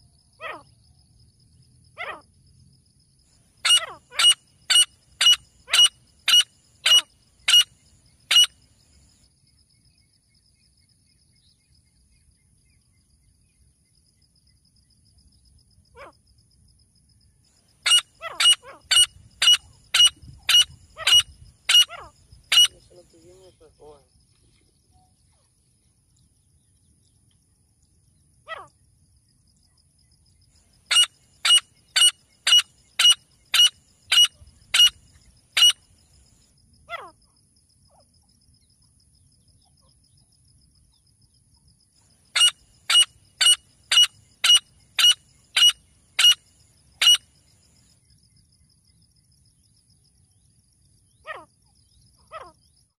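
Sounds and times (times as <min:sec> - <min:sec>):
francolin shrill repeated calls: 0:03.6 - 0:08.6, 0:17.8 - 0:23.0, 0:30.9 - 0:35.0, 0:35.6 - 0:35.9, 0:42.3 - 0:47.3.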